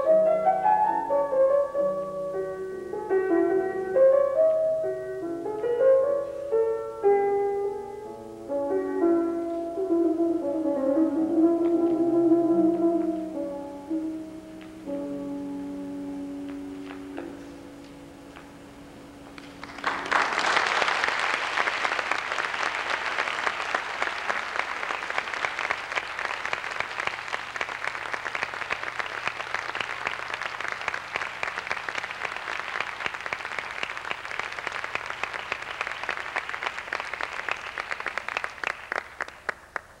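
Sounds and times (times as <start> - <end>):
audience applause: 19.4 - 39.9.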